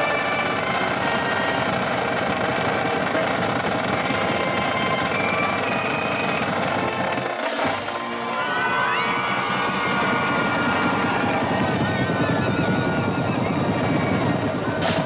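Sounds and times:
snare and bass drums: 0.0s - 8.2s, 9.1s - 15.0s
marching band playing: 0.0s - 15.0s.

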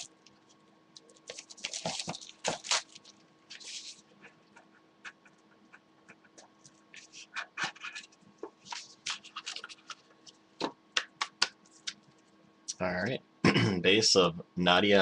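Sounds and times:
faint steady hum: 0.0s - 15.0s
cards and packaging rustling: 1.0s - 4.0s, 7.0s - 10.4s.

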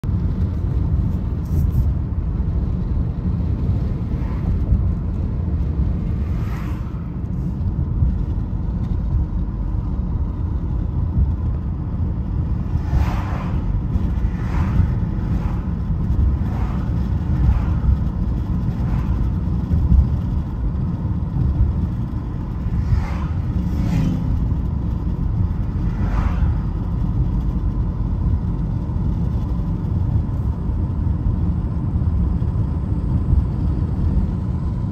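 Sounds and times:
car engine and tyre rumble: 0.0s - 34.9s
passing cars whooshing: 0.1s - 9.0s, 11.8s - 20.8s, 21.7s - 28.6s.

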